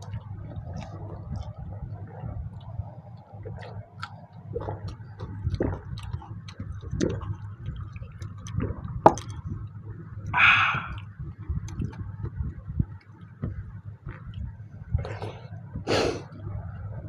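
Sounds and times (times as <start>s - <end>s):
chewing and lip smacks: 0.0s - 15.6s
steady low hum: 0.0s - 17.0s
short breathy rush of air: 10.4s - 11.0s.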